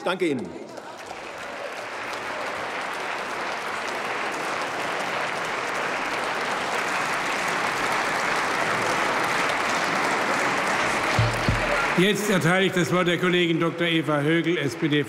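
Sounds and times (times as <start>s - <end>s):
dense steady clapping: 0.8s - 12.6s.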